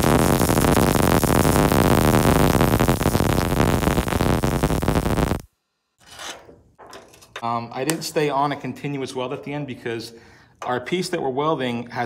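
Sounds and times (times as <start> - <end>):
welder arc crackling: 0.0 - 5.5.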